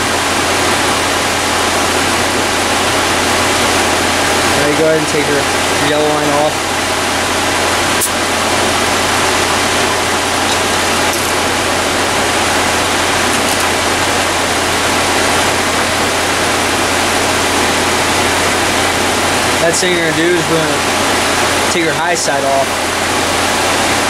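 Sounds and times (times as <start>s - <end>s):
air conditioning rushing: 0.0s - 24.0s
car engine idling hum: 0.0s - 24.0s.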